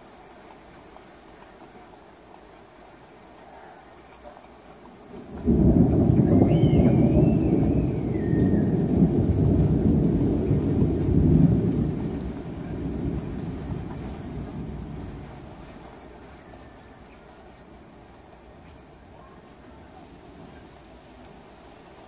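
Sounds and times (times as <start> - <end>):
steady rain: 0.0 - 22.0
thunderclap with deep rumble: 5.1 - 21.4.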